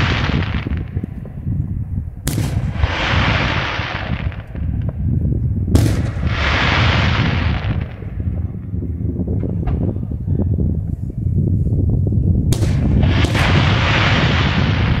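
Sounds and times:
firework hiss: 0:00.0 - 0:01.0, 0:02.3 - 0:04.7, 0:05.8 - 0:08.2, 0:12.6 - 0:15.0
low rumble: 0:00.0 - 0:15.0.

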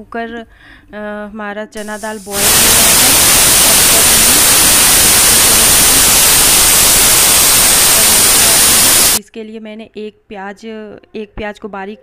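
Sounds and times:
pressure cooker steam hissing: 0:01.8 - 0:09.2
pressure cooker whistle: 0:01.8 - 0:09.2.

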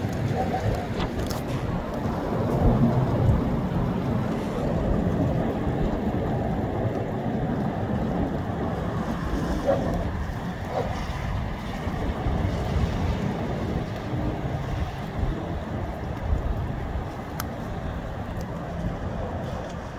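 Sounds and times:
wind buffeting microphone: 0:00.0 - 0:19.9.

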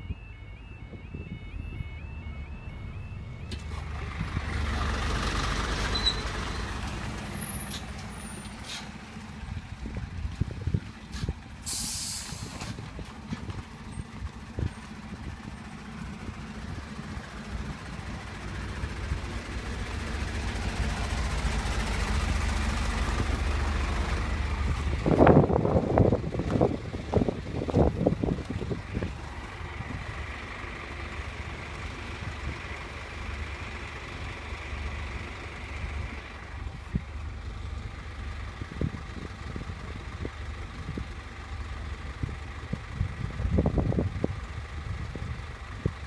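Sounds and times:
two-tone crossing alarm: 0:00.0 - 0:04.8
lorry engine running: 0:00.0 - 0:46.0
air brakes hissing: 0:07.6 - 0:09.0, 0:11.1 - 0:12.8.

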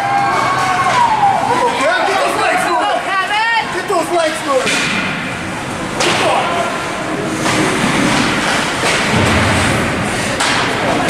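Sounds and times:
hockey sticks and puck knocks: 0:06.0 - 0:06.4, 0:07.4 - 0:09.8, 0:10.4 - 0:11.0
skates scraping on ice: 0:07.3 - 0:10.7.

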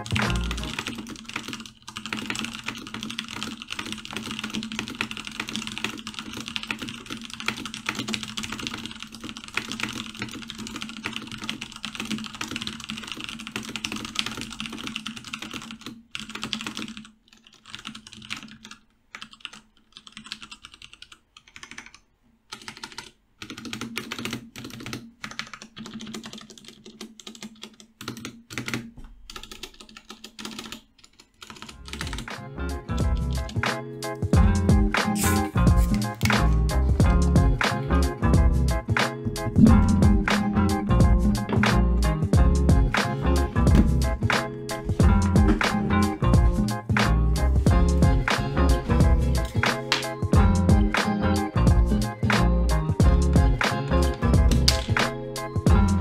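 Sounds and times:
mechanical keyboard typing: 0:00.0 - 0:32.4, 0:54.4 - 0:55.2.

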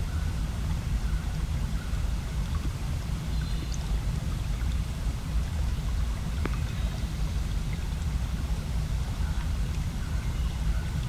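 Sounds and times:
faint click: 0:06.4 - 0:06.6.

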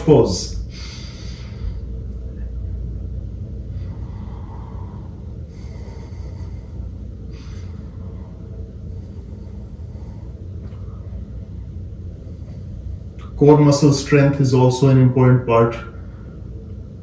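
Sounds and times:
low room hum: 0:00.0 - 0:17.0
man breathing through nose: 0:00.6 - 0:02.0, 0:03.7 - 0:10.9.

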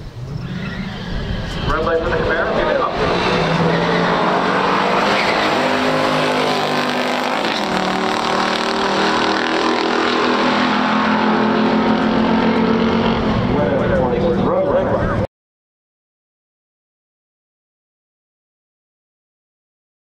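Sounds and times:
drag car engines at full throttle: 0:00.0 - 0:15.3.

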